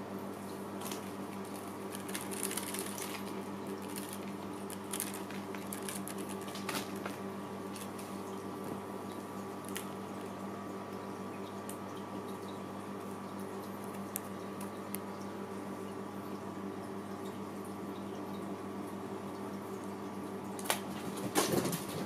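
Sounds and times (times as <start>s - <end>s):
steady low hum: 0.0s - 21.1s
cats landing on hard floor: 20.7s - 22.0s.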